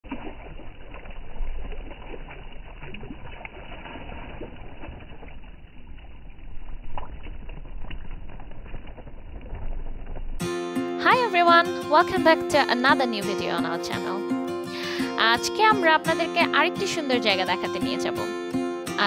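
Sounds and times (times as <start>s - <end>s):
water lapping at shore: 0.1s - 7.4s
hand scooping water: 0.1s - 10.0s
low rumble: 0.6s - 10.5s.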